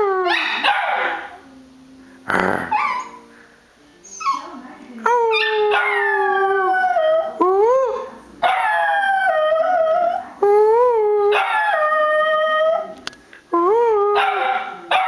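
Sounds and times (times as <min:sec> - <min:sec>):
dog howling: 0:05.3 - 0:10.2.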